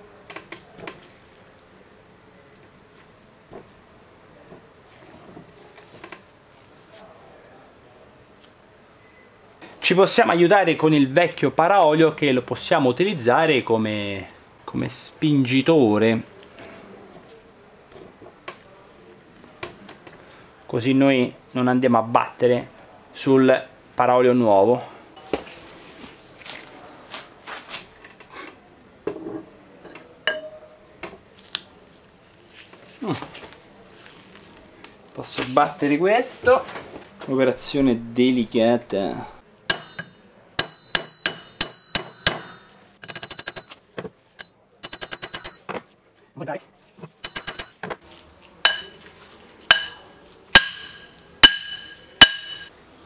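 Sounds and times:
hammer striking metal with ring: 30.0 - 30.8, 39.7 - 42.8, 47.2 - 47.8, 48.6 - 49.0, 49.7 - 52.7.

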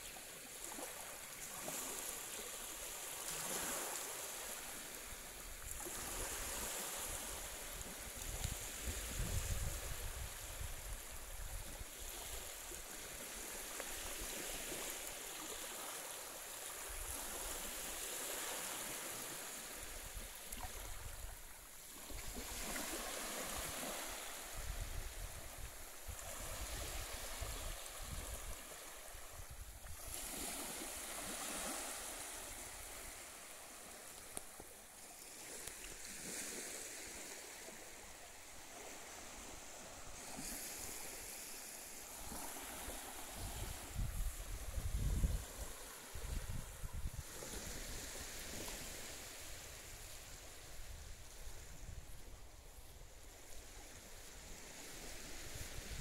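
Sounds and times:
small waves lapping on sand: 0.0 - 56.0
wind rumble on microphone: 6.0 - 12.3, 23.5 - 30.4, 43.3 - 53.2, 54.4 - 56.0.

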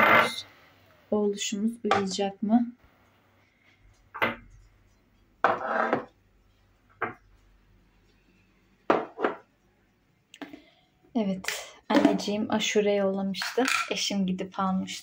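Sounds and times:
kitchenware knocking and clattering: 4.2 - 4.5, 5.4 - 6.2, 8.9 - 9.5, 11.9 - 12.4, 13.4 - 14.0.

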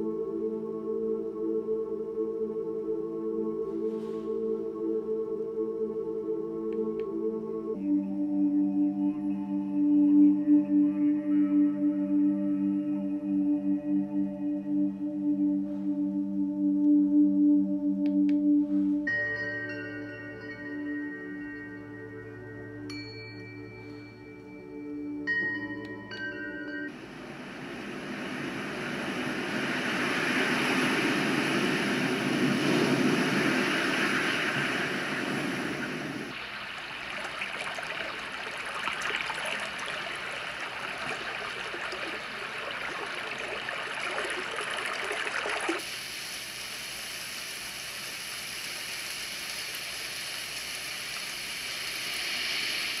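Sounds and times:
water and surf rushing hiss: 26.9 - 53.0.

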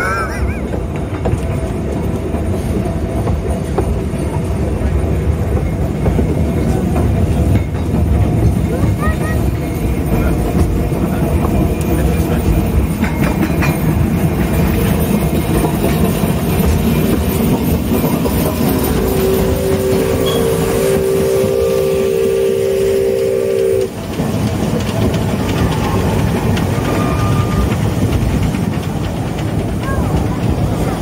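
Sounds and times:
steam train rumbling on rails: 0.0 - 31.0
steam whistle: 19.0 - 24.0.

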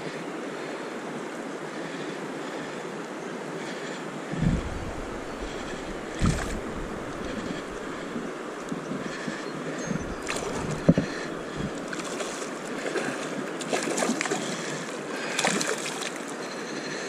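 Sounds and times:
shallow river current rushing: 0.0 - 17.0
sharp thump: 4.4 - 7.8
fish splashing at surface: 4.4 - 8.3.

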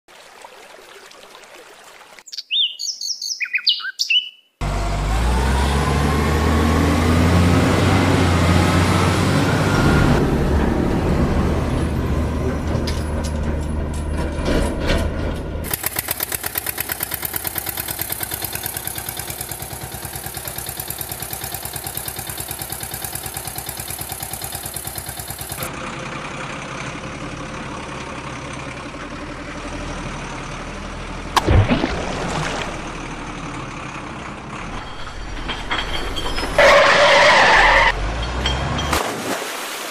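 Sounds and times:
birds chirping: 2.2 - 4.6
heavy truck engine revving: 4.6 - 31.4.

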